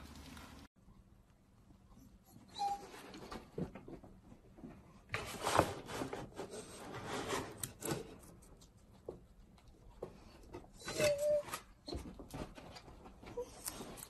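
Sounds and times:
dog rustling and scraping on crate: 4.7 - 8.2.

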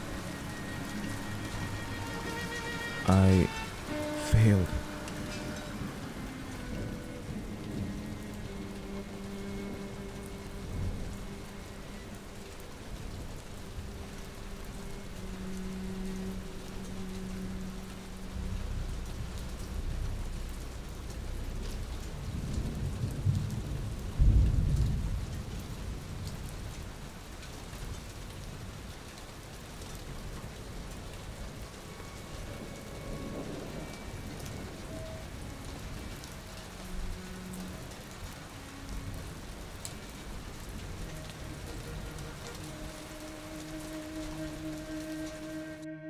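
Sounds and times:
thunder rumbling: 0.0 - 11.9, 18.4 - 27.1, 30.6 - 45.2
steady rain: 0.0 - 46.0
loud thunderclap: 22.3 - 25.6.

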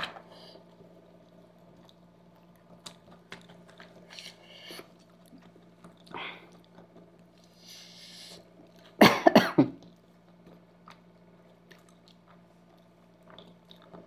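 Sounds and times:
person chewing pasta: 0.2 - 9.0, 9.8 - 14.0.

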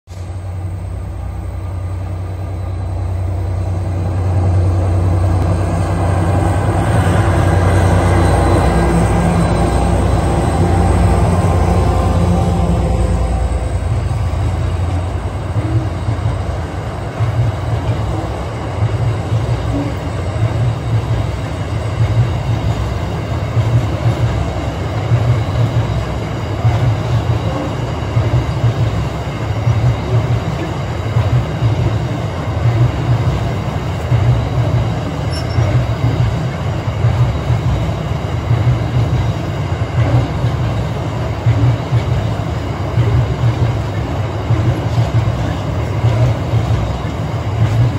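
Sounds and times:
freight train rumbling over bridge: 0.1 - 47.9.

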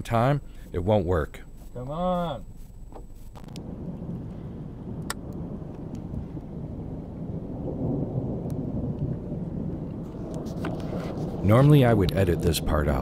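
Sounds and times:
distant thunder rumble: 2.8 - 13.0.

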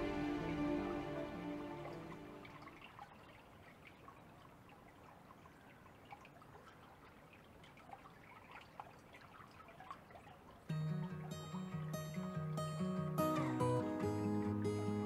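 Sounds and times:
small water splashes: 0.0 - 11.3
river water lapping: 0.0 - 15.0.

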